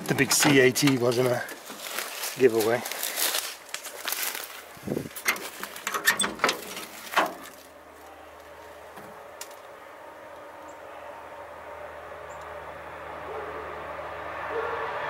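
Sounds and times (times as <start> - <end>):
dry brush crackling underfoot: 0.0 - 10.7.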